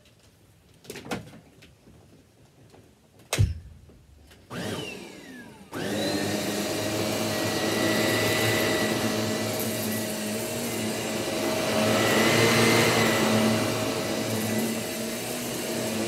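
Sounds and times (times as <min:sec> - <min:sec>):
loud thump: 0:03.4 - 0:04.0
vacuum cleaner motor whining: 0:04.5 - 0:16.0.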